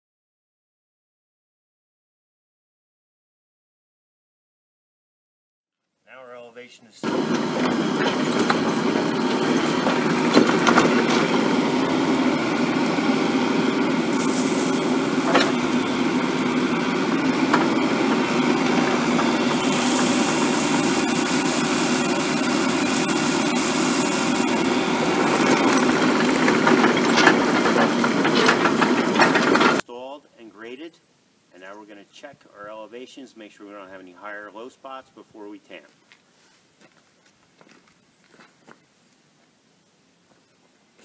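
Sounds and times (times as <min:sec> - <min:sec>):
bucket dumping gravel: 0:07.0 - 0:29.8
excavator diesel engine running: 0:07.0 - 0:29.8.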